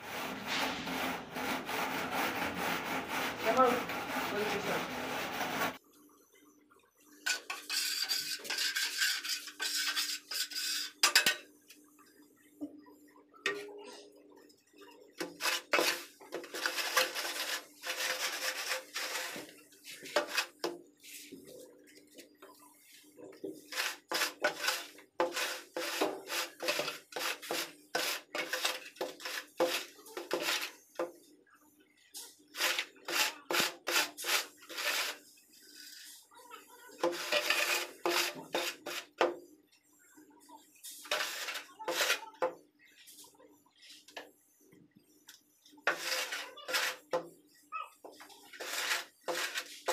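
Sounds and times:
hands scraping sand: 48.6s - 49.9s.

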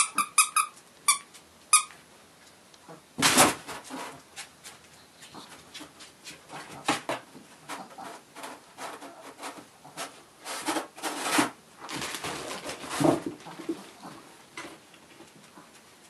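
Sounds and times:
kitten scratching inside box: 7.7s - 11.6s.

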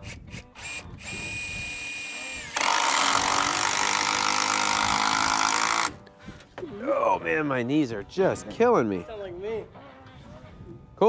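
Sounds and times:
impact driver motor running: 0.0s - 6.0s
impact driver hammering: 2.5s - 6.0s.

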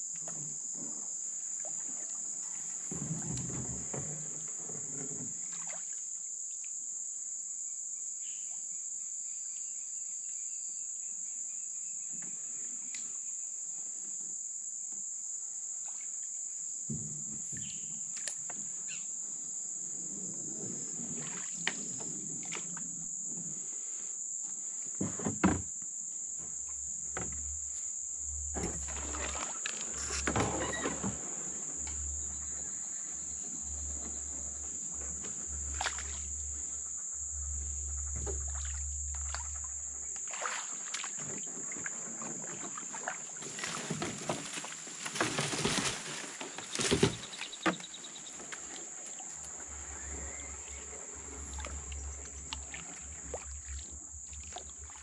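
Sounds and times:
insects droning: 0.0s - 55.0s
paddle swishing through water: 28.5s - 55.0s.

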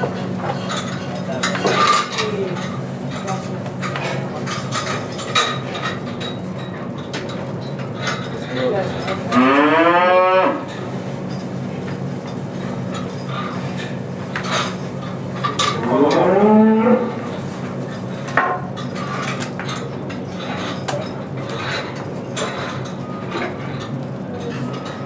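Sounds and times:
cow mooing: 9.3s - 10.7s, 15.8s - 17.2s.

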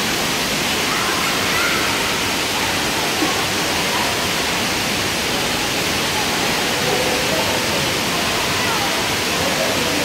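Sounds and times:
running water echoing: 0.0s - 10.0s
distant children's voices: 0.8s - 4.5s.

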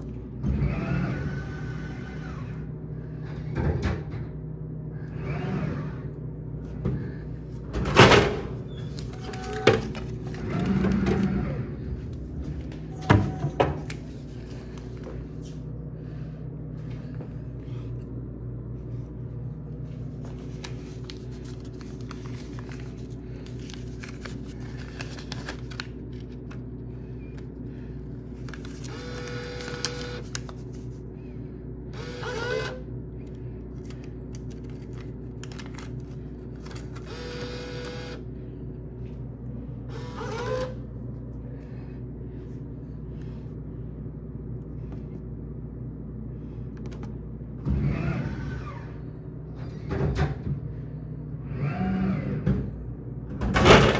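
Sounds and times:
vending machine humming: 0.0s - 53.9s
bill acceptor whirring: 28.7s - 30.4s, 31.9s - 32.9s, 36.8s - 38.3s, 39.9s - 40.8s.

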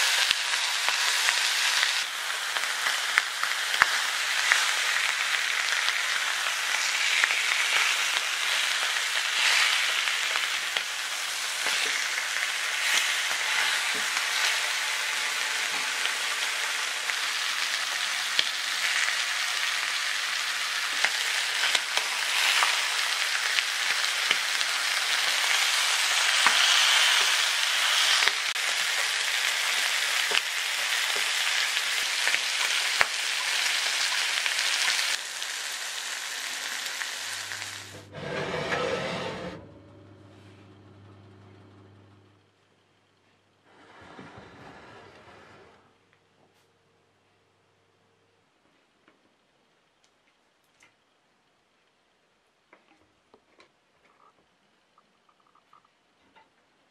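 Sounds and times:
oil popping and crackling: 0.0s - 37.9s, 52.8s - 56.0s
ribs sizzling in oil: 0.0s - 38.0s.

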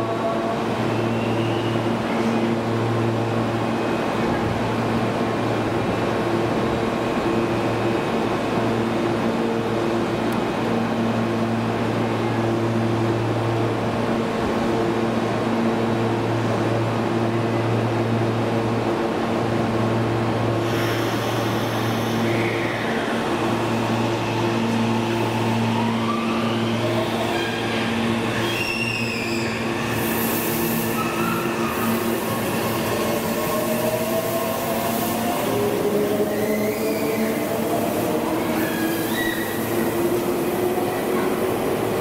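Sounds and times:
train equipment and fans humming: 0.0s - 42.0s
air hiss: 20.6s - 22.3s.

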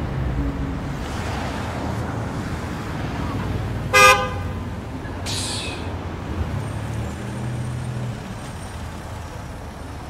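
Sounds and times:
motor vehicles running close by: 0.0s - 10.0s.

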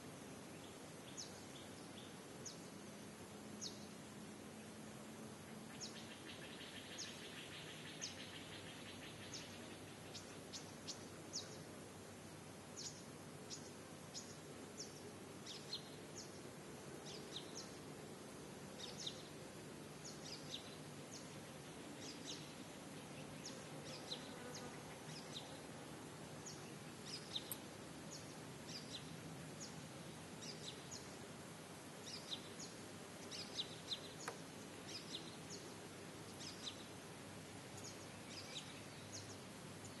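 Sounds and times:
low steady background noise: 0.0s - 40.0s
small birds chirping: 0.4s - 2.9s, 5.4s - 11.7s, 12.7s - 40.0s.

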